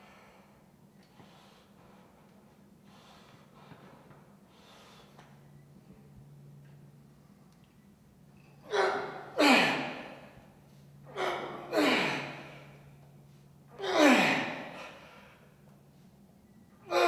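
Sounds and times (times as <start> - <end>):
man breathing hard: 0.0 - 5.4, 9.5 - 13.4, 14.0 - 15.6.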